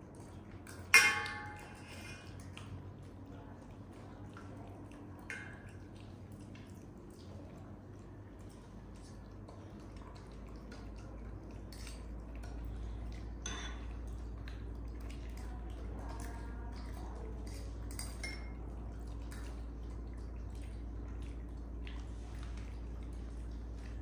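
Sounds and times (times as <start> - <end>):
spoon clinking against dish: 0.8 - 2.2, 13.4 - 13.9, 17.4 - 18.6.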